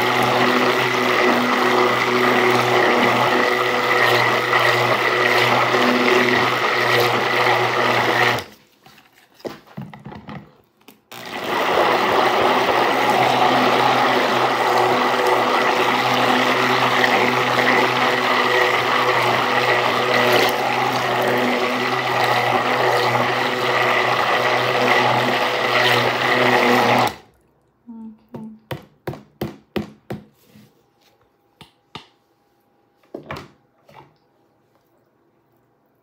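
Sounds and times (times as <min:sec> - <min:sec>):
stick blender running: 0:00.0 - 0:08.5, 0:11.1 - 0:27.3.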